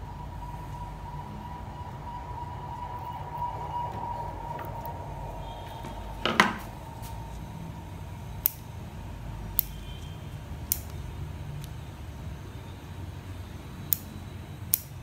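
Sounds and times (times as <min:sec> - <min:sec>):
loud knock: 0:06.2 - 0:06.7
scissors snipping leaves: 0:10.7 - 0:11.8.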